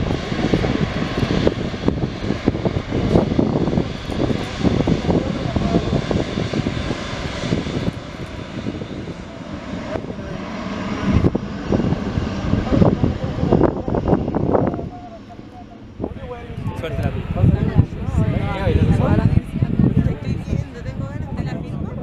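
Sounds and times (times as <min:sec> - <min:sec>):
jet engines at taxi power: 0:00.0 - 0:22.0.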